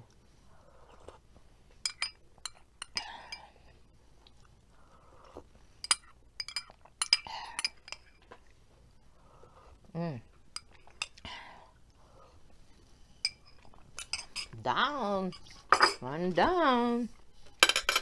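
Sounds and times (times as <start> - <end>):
metal spoon clinking on glass cup: 1.8 - 3.4.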